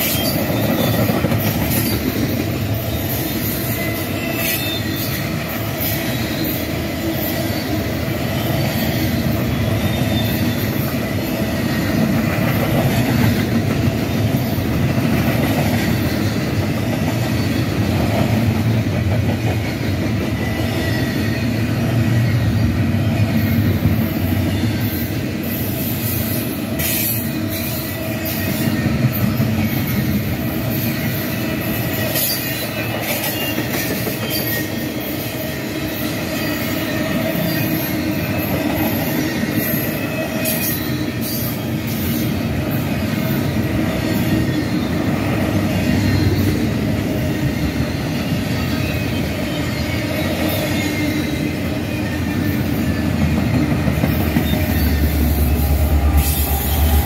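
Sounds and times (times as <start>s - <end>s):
wheel squeal: 0.0s - 12.0s, 30.7s - 42.4s
freight train wheels rumbling: 0.0s - 57.0s.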